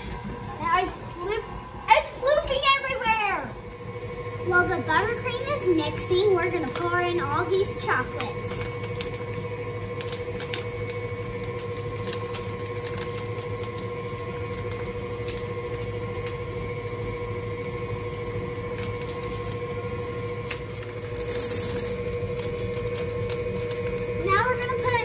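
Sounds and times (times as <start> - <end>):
stand mixer humming: 0.0 - 25.0
plastic bag crinkle: 9.9 - 15.5, 18.0 - 19.7, 20.4 - 25.0.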